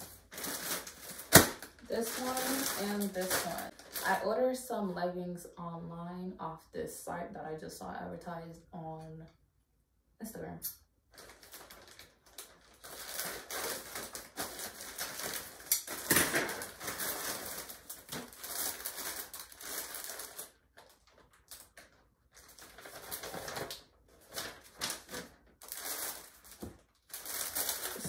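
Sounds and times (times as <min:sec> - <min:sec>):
plastic packaging crinkling: 0:00.0 - 0:04.3, 0:11.1 - 0:28.0
scissors cutting plastic bag: 0:00.3 - 0:04.2, 0:11.2 - 0:28.0.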